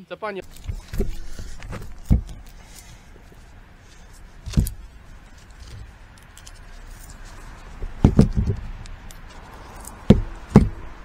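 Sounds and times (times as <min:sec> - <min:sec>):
tools clinking: 0:00.4 - 0:10.9
dull knocks on concrete: 0:08.0 - 0:08.6, 0:10.1 - 0:10.8.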